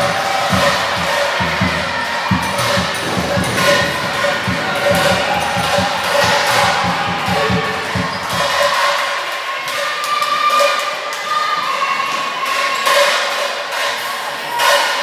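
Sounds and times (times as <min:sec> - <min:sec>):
steady pitched sound mix: 0:00.0 - 0:08.9
low regular beat: 0:00.0 - 0:09.0.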